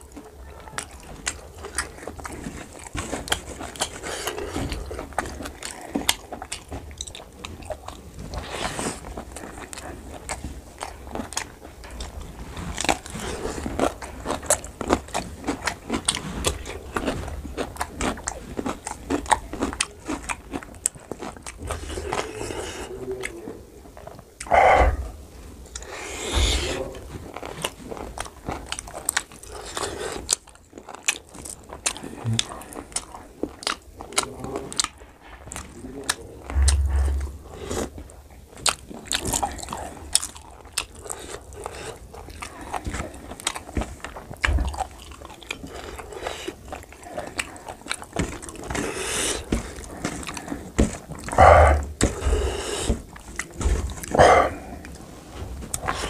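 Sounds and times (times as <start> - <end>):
wet chewing: 0.0 - 56.0
low thumps: 36.4 - 38.1.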